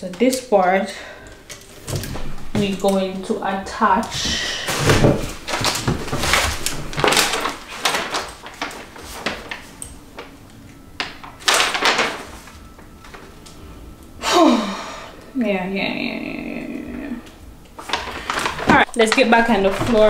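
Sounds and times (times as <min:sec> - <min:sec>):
paper rustling and crinkling: 0:04.0 - 0:13.6, 0:17.8 - 0:20.0.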